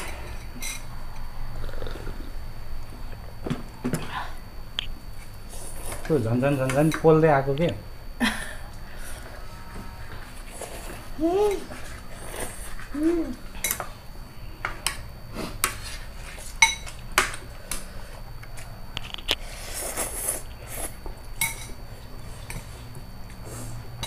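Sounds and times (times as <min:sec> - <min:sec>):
person slurping noodles: 0:19.4 - 0:21.0.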